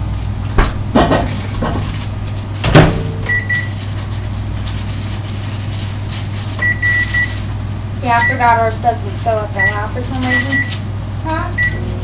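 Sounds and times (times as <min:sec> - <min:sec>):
steady low hum: 0:00.0 - 0:12.0
microwave door thump: 0:00.6 - 0:01.8.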